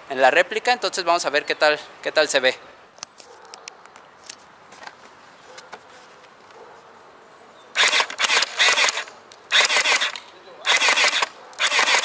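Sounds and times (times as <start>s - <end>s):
gel blaster rapid shots: 7.8s - 12.0s.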